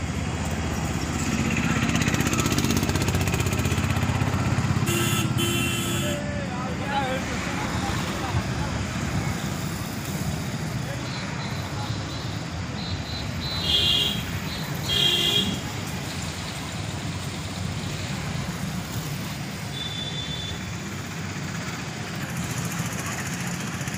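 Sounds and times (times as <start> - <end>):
road traffic: 0.0 - 23.9
vehicle horn honks: 4.8 - 6.2, 13.4 - 15.6, 19.7 - 20.6.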